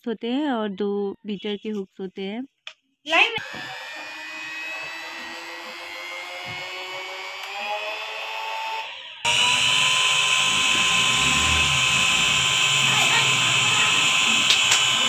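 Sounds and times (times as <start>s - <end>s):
electric hand mixer whining: 3.2s - 15.0s.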